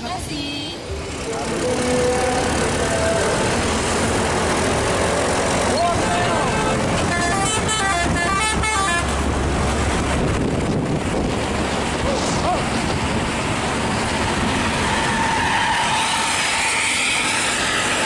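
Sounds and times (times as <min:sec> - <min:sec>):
coach engine and exhaust: 0:00.0 - 0:18.0
multi-tone musical horn: 0:07.1 - 0:09.2.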